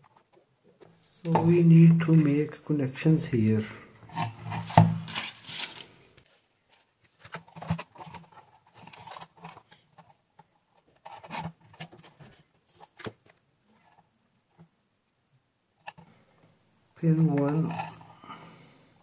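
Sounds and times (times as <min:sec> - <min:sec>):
hands handling wires and cable: 0:04.1 - 0:14.7, 0:15.8 - 0:16.1, 0:17.0 - 0:18.1.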